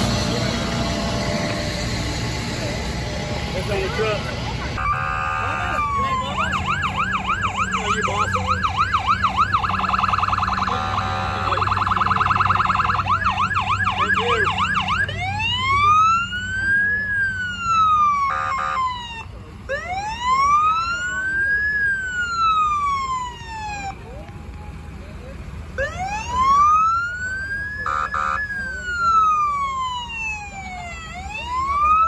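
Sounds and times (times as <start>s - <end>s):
ambulance siren: 0.0s - 24.2s, 25.6s - 32.0s
vehicle engine humming: 0.0s - 32.0s
short horn blare: 4.8s - 5.9s, 10.7s - 11.7s.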